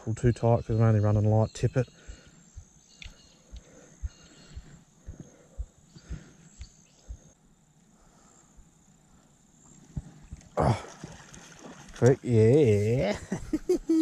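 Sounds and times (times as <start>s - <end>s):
high insect drone: 0.5s - 14.0s
soft low thumps: 1.2s - 7.4s.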